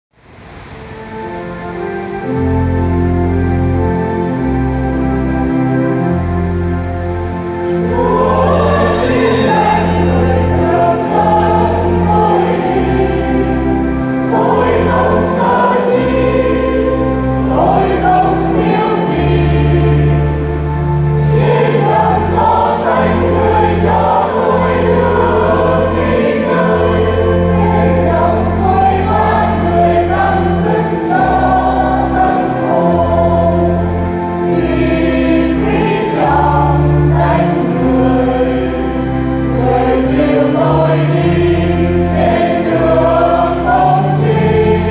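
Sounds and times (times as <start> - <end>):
instrumental accompaniment: 0.4 - 44.9
choir singing a hymn: 0.6 - 44.9
held bass notes: 2.3 - 44.9.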